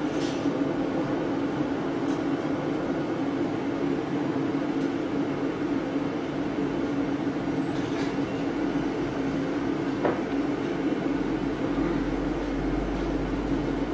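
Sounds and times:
ventilation fan droning: 0.0 - 13.9.

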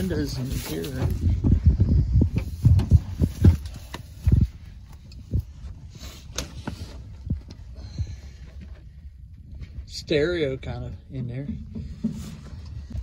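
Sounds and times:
dull metal clunks and knocks: 10.9 - 13.0.

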